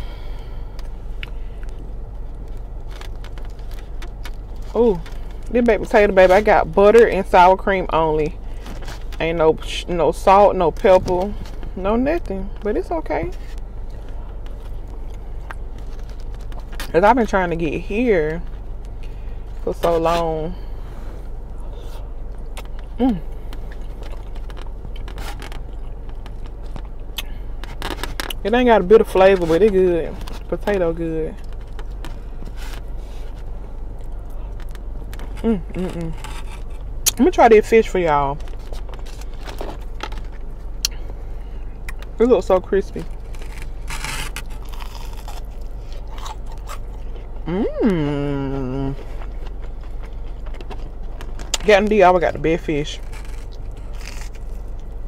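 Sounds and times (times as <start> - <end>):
low background hum: 0.0 - 55.0
soft chewing: 20.6 - 28.4, 43.1 - 51.6
person humming mm: 47.4 - 48.9.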